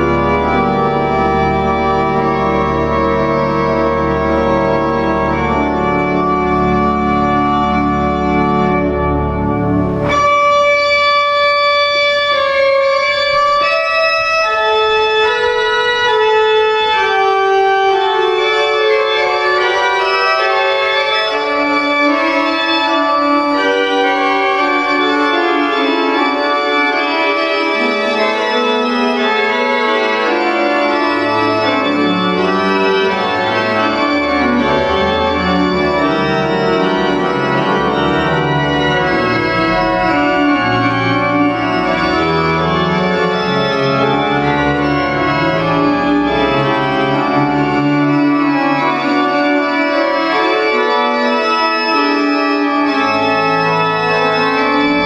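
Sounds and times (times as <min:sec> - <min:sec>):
deep organ pedal notes: 0:00.0 - 0:55.0
pipe organ playing slow chords: 0:00.0 - 0:55.0.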